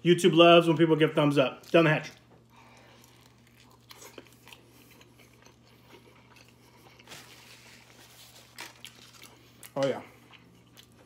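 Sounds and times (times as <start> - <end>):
man chewing food: 1.6 - 11.0.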